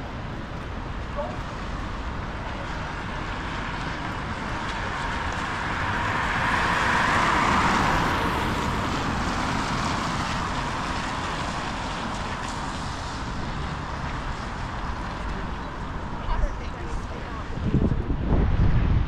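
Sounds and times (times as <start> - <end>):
low traffic rumble: 0.0 - 19.0
car tyres hissing on wet road: 1.4 - 16.2.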